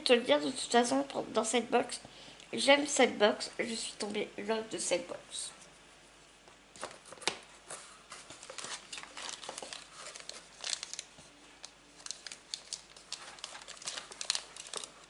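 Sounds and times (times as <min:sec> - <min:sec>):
plastic bag crinkling: 0:08.2 - 0:15.0.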